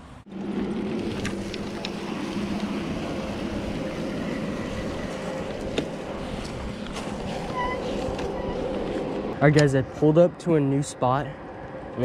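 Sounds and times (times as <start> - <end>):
bike tyres rolling: 0.3 - 9.4.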